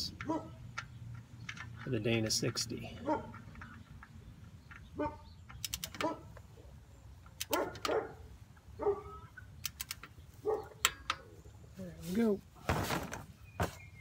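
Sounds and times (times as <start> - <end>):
dog barking: 0.2 - 0.6, 3.0 - 3.4, 5.0 - 5.2, 6.0 - 6.3, 7.5 - 9.2, 10.4 - 10.8
wrench ratcheting clicks: 9.6 - 10.1.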